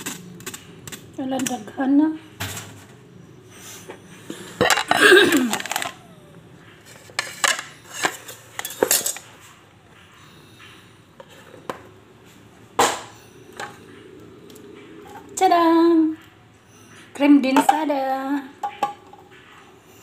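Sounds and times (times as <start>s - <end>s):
dishes and cutlery clattering: 6.8s - 9.6s, 18.6s - 19.5s.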